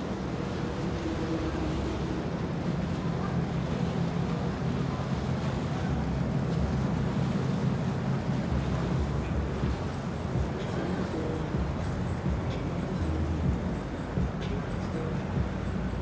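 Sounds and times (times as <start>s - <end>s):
boat engine rumbling: 0.0s - 16.0s
wind noise on microphone: 8.5s - 16.0s.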